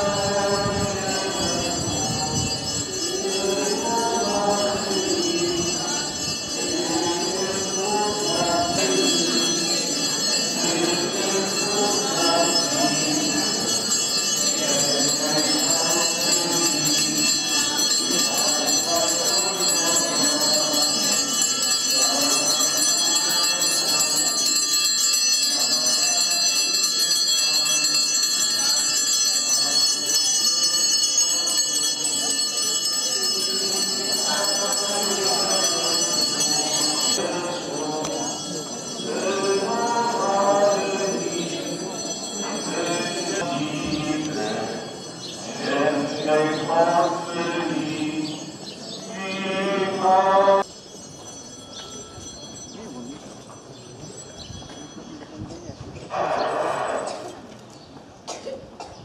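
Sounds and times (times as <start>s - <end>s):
crowd singing a hymn: 0.0s - 24.7s, 33.3s - 50.7s
hand bells ringing: 0.0s - 56.0s.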